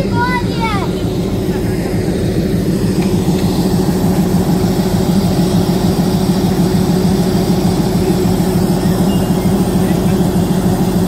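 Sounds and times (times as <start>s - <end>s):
train engine idling: 0.0s - 11.0s.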